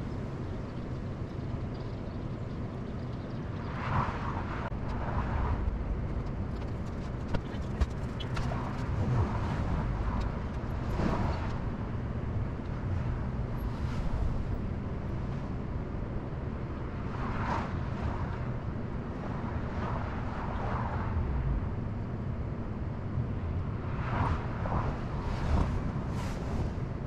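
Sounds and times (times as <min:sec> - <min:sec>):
distant road traffic rumble: 0:00.0 - 0:27.0.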